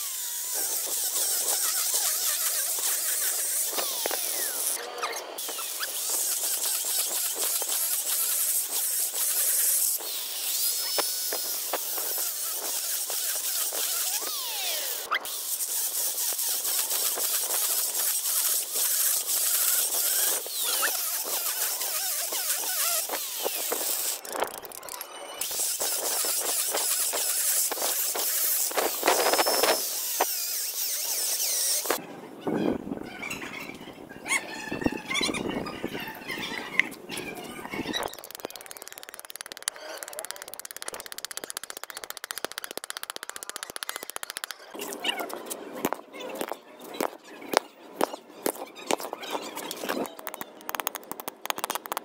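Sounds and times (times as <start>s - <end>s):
angle grinder boring into concrete: 0.0s - 32.0s.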